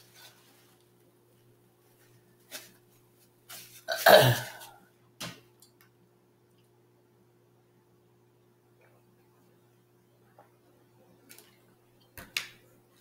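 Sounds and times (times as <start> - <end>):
woman coughing: 3.9 - 4.7.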